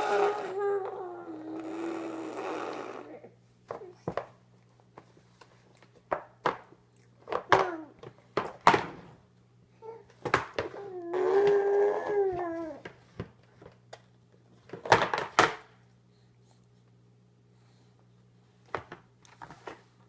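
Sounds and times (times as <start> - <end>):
baby vocalizing: 0.0 - 3.4.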